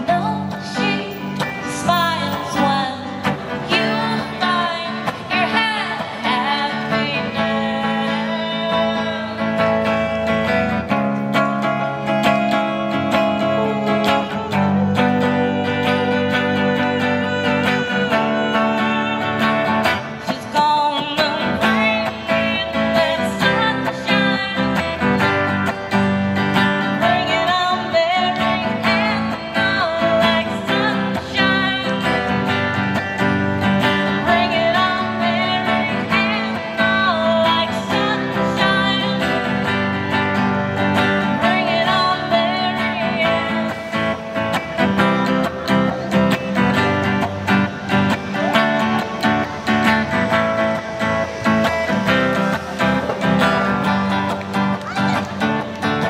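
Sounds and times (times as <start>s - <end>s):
woman singing: 0.0s - 10.3s, 12.2s - 25.9s, 26.6s - 47.3s
electric guitar strummed: 0.0s - 56.0s.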